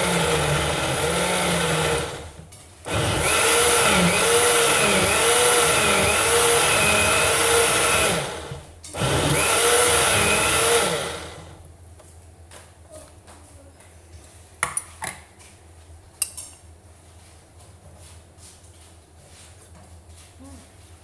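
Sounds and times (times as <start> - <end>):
blender running: 0.0 - 11.6.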